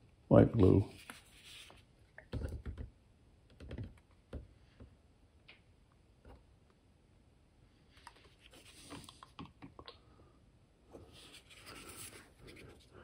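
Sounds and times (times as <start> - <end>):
soft scratchy rustle: 0.8 - 1.9, 8.2 - 9.2.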